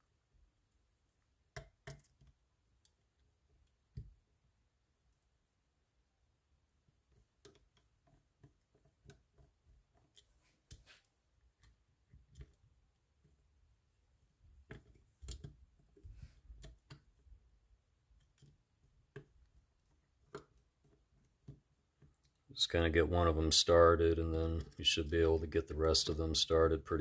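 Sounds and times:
small clicks and metal taps: 1.5s - 3.0s, 7.1s - 13.4s, 14.6s - 17.2s, 18.1s - 22.5s.

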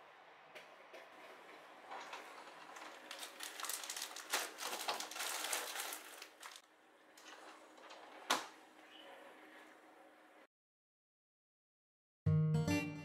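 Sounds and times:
plastic bags rustling: 1.8s - 8.0s.

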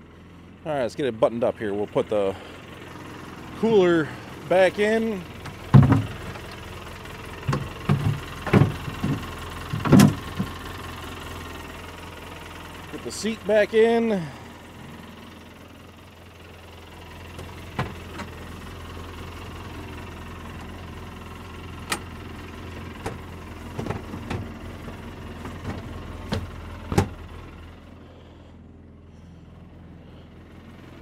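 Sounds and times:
engine idling: 0.0s - 31.0s
seat clunking into place: 7.4s - 10.5s, 17.4s - 18.3s, 23.0s - 24.5s, 25.4s - 27.3s.

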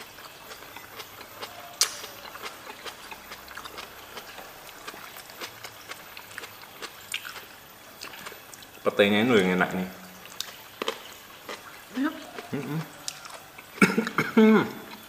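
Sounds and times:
fingers clicking on plates: 0.0s - 4.3s
chewing: 0.0s - 15.0s.

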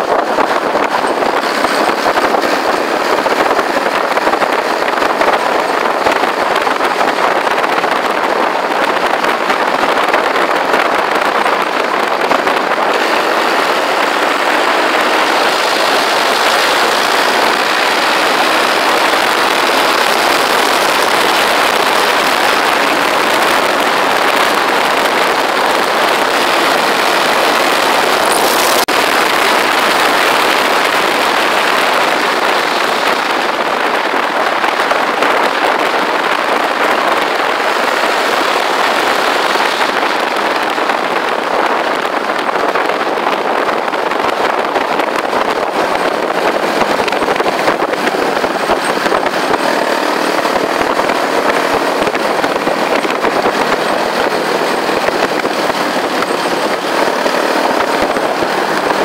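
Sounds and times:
wind and tyre noise: 0.0s - 59.0s.

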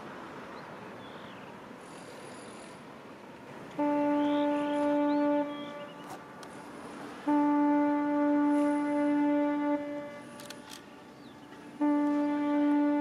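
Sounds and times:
ship's whistle blasts: 3.8s - 6.0s, 7.2s - 10.4s, 11.8s - 13.0s.

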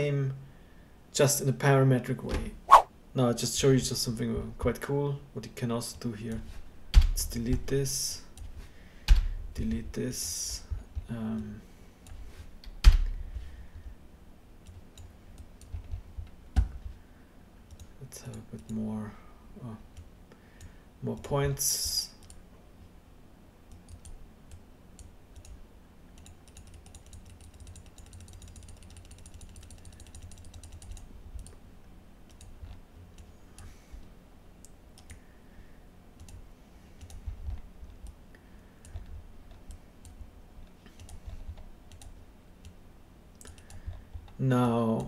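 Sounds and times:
computer mouse clicking: 23.7s - 25.6s, 26.2s - 31.6s, 32.3s - 33.7s, 34.6s - 35.2s, 36.2s - 36.4s, 37.0s - 38.2s, 38.8s - 42.8s, 43.4s - 44.4s.

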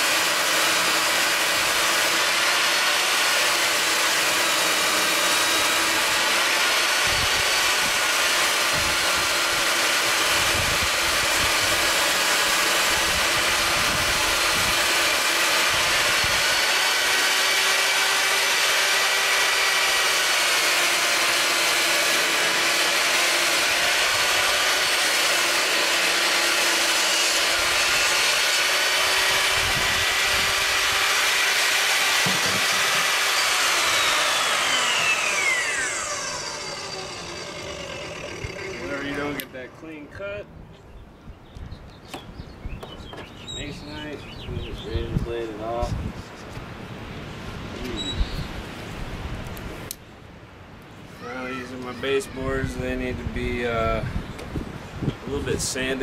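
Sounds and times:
saw blade spinning down: 0.0s - 39.8s
table saw cutting board: 0.0s - 39.8s.

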